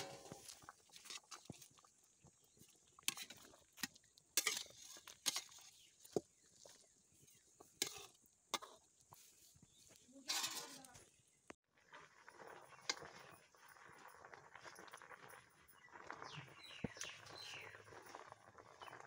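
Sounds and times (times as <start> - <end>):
metal spatula scraping a steel pan: 0.0 - 1.1, 4.4 - 5.8, 7.8 - 8.8, 10.3 - 10.9.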